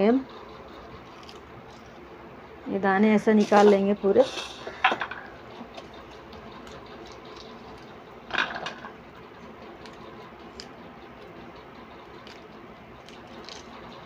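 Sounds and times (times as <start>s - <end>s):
pea pods being shelled: 0.8s - 2.1s, 5.6s - 14.0s.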